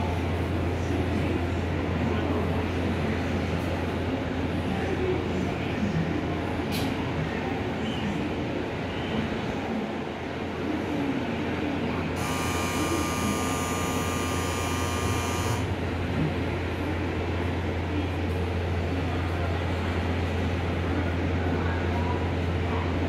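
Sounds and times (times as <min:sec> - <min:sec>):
electric train humming: 0:11.6 - 0:21.6
buzzing electronic signal tone: 0:12.2 - 0:15.7.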